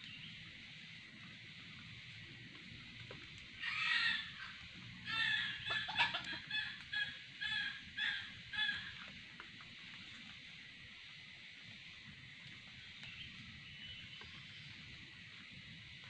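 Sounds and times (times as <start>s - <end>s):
rooster calling: 3.6s - 9.0s
rooster clucking: 3.6s - 9.0s.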